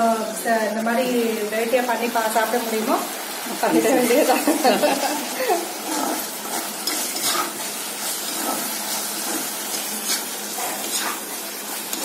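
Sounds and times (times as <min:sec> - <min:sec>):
food sizzling in a pan: 0:00.0 - 0:12.0
metal spoon scraping a pan: 0:05.8 - 0:12.0.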